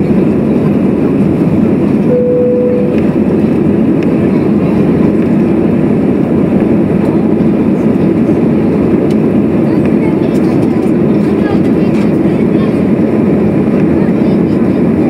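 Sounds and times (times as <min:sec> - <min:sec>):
jet engine and airflow rush: 0:00.0 - 0:15.0
short steady tone: 0:02.1 - 0:03.1.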